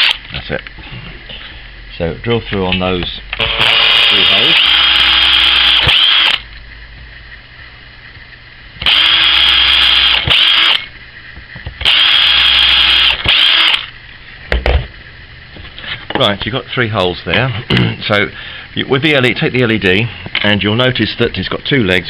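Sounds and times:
cordless drill drilling into wood: 3.4 - 6.4, 8.8 - 10.9, 11.8 - 13.9.

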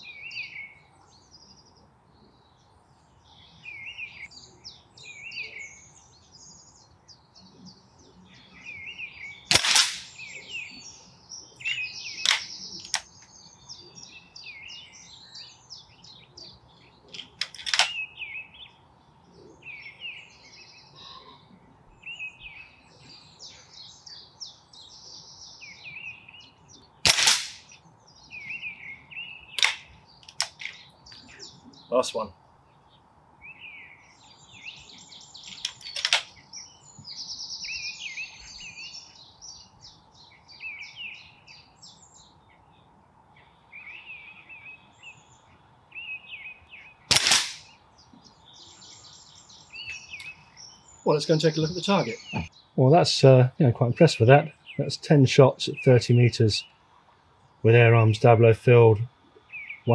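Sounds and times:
birds singing: 0.0 - 59.9
air rifle shots cracking: 9.5 - 10.3, 12.2 - 13.1, 17.4 - 18.0, 27.0 - 27.8, 29.6 - 30.7, 35.6 - 36.3, 47.1 - 47.8.

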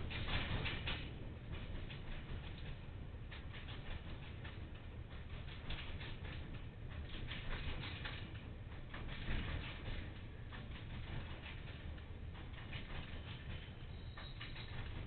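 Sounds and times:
train rumbling: 0.0 - 15.0
wagons clicking and rattling: 3.3 - 15.0.

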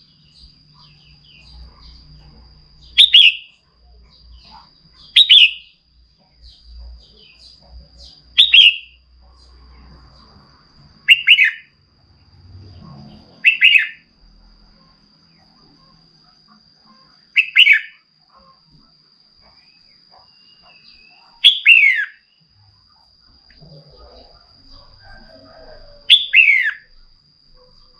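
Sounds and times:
bird double-note calls: 3.0 - 3.5, 5.1 - 5.7, 8.4 - 9.0, 11.1 - 11.7, 13.4 - 14.0, 17.4 - 18.0, 21.4 - 22.2, 26.1 - 26.9.

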